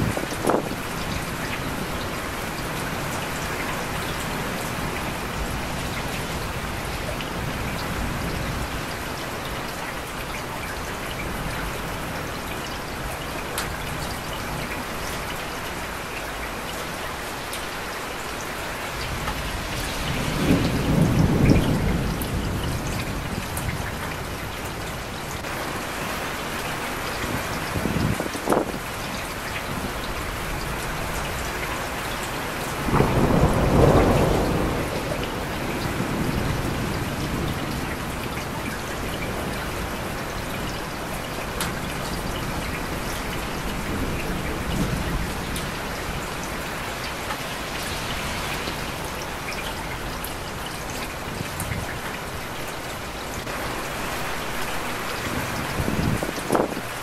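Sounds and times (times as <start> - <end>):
low rumble of thunder: 0.0 - 2.0, 19.0 - 25.5, 27.3 - 29.0, 32.8 - 46.7, 55.1 - 57.0
steady rain falling: 0.0 - 57.0.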